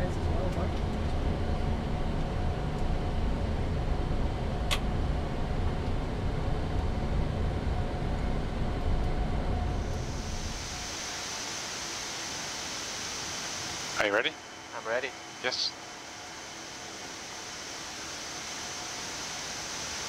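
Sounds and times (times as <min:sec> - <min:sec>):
aircraft taxiing rumble: 0:00.0 - 0:20.0
steady high hiss: 0:09.8 - 0:20.0.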